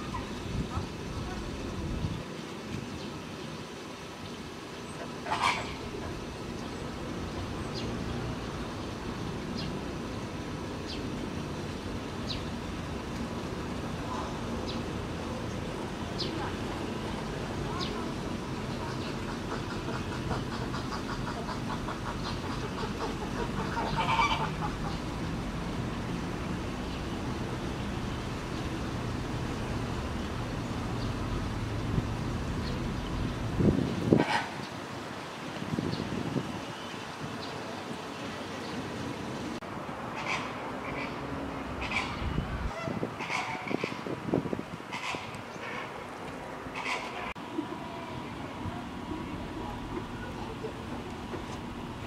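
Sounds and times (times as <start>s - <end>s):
low outdoor rumble: 44.6s - 52.0s.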